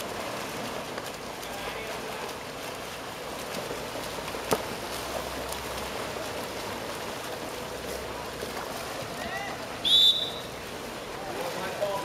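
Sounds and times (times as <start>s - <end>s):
swimmers splashing in a pool: 0.0s - 12.0s
sharp water slap: 4.2s - 5.9s.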